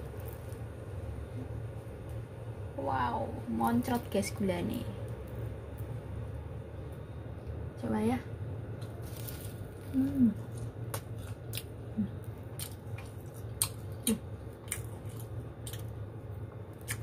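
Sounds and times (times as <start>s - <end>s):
crispy crust cracking: 0.0s - 0.8s, 8.8s - 16.0s.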